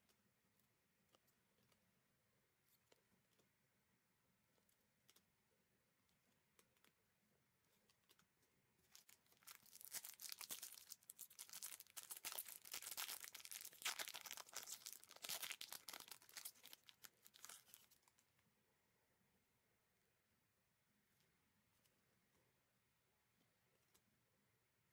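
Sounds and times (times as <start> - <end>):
plastic wrapper crinkling: 8.9 - 18.2.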